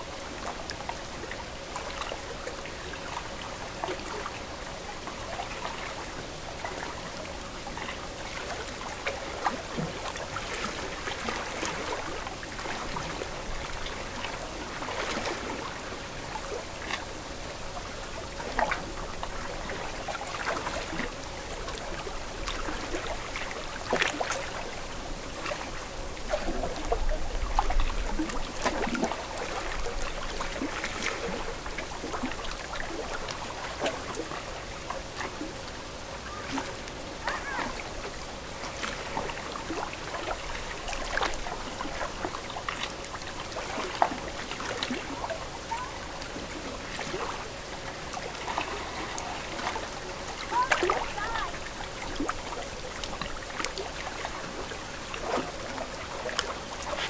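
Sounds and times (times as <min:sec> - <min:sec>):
water lapping at shore: 0:00.0 - 0:57.0.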